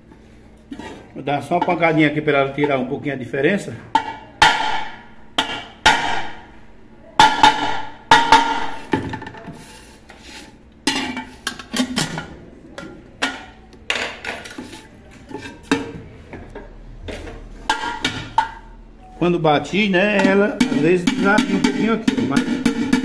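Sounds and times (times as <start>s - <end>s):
metallic knocks on pressure cooker: 20.2s - 23.0s.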